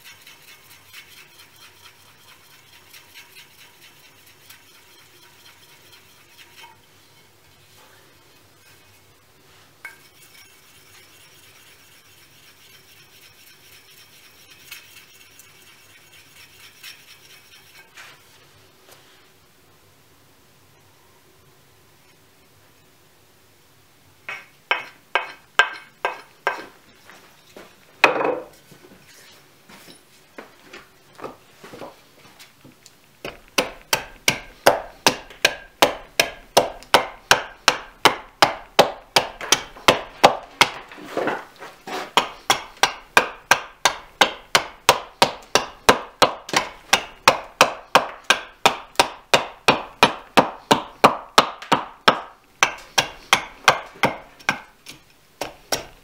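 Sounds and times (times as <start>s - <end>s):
axe chopping wood: 33.2s - 40.8s, 42.2s - 56.0s.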